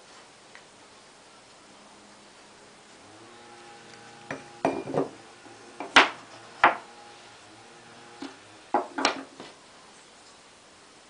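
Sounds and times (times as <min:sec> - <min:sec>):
wooden parts knocking on workbench: 0:04.3 - 0:05.2, 0:05.8 - 0:06.8, 0:08.2 - 0:09.5.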